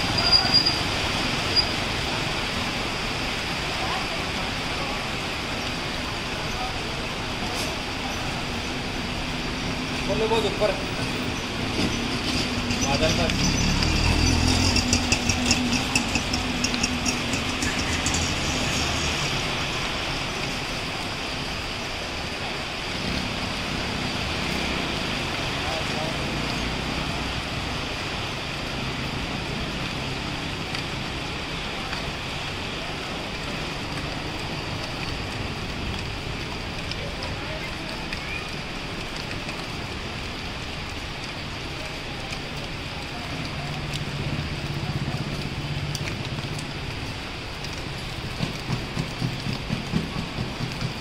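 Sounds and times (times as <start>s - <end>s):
heavy rain hiss: 0.0s - 51.0s
raindrop ticks: 7.4s - 21.2s, 22.9s - 51.0s.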